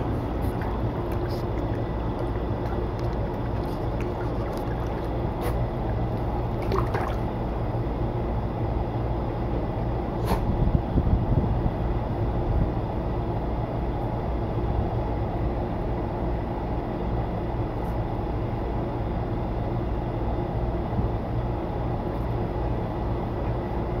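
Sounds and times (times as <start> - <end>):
electric fan humming: 0.0 - 18.8.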